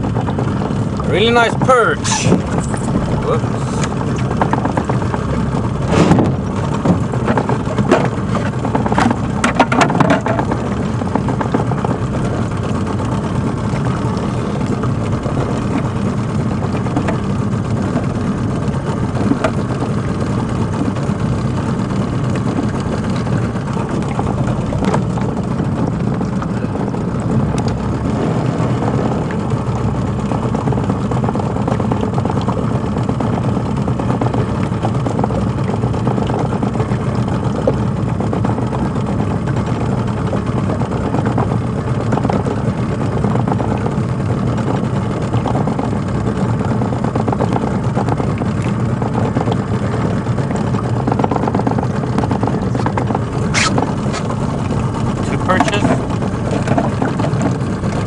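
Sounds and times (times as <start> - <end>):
steady low rumble: 0.0 - 58.0
knocks and rattles: 4.0 - 14.2.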